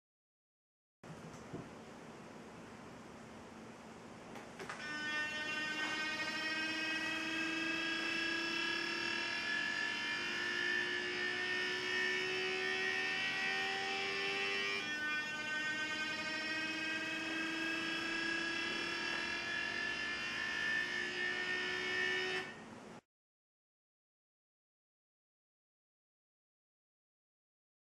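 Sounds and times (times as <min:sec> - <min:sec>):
mirror actuators buzzing: 0:04.4 - 0:22.6.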